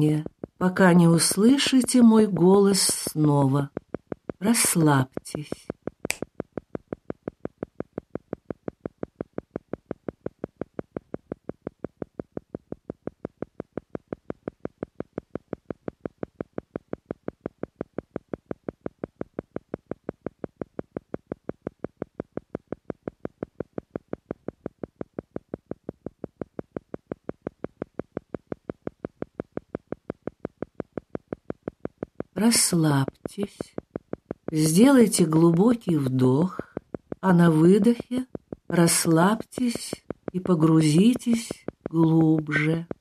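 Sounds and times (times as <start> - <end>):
short evenly spaced pulses: 0.0 - 43.0.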